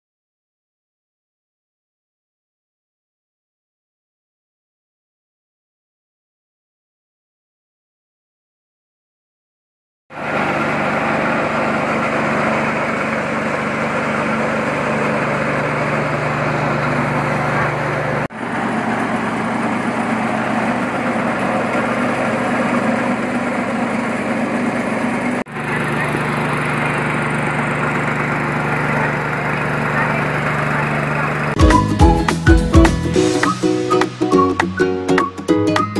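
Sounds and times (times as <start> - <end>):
rice mill running: 10.1 - 31.8.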